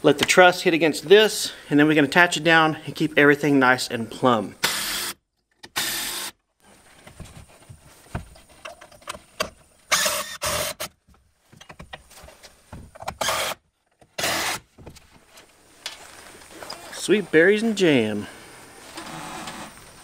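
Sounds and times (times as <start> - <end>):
impact driver driving screws: 4.6 - 6.4, 9.9 - 11.0, 13.0 - 14.6.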